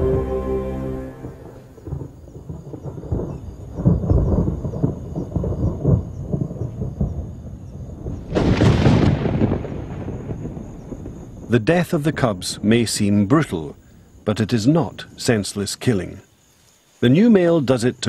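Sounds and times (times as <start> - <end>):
loud thunder crack: 0.0 - 11.6
low rolling thunder rumbles: 0.0 - 13.0.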